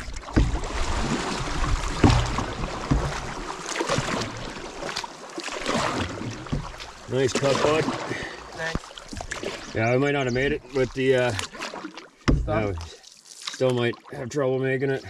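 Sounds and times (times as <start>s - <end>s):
paddle strokes splashing: 0.0s - 14.2s
water rushing along hull: 0.0s - 15.0s.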